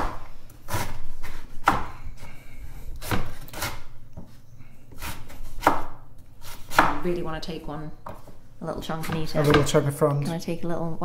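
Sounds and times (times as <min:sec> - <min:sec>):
knife chopping on wooden board: 0:00.0 - 0:02.0, 0:03.0 - 0:07.0.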